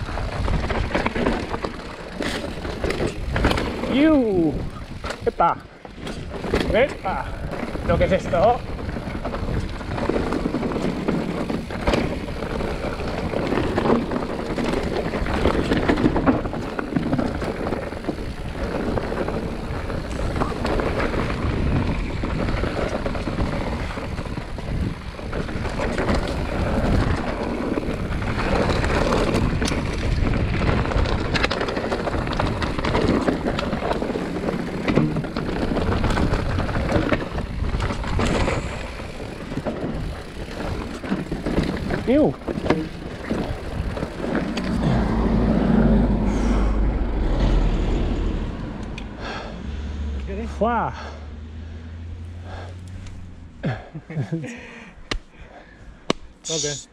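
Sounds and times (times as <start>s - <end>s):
wind buffeting microphone: 0.0s - 1.6s, 2.4s - 5.2s, 5.9s - 49.4s
bike rattling over rocks: 0.0s - 46.6s
bike tyre noise on trail: 0.0s - 56.9s.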